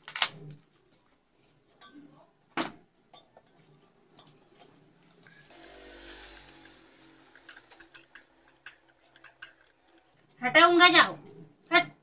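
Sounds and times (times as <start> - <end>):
steel bowl clinks: 5.6 - 10.6.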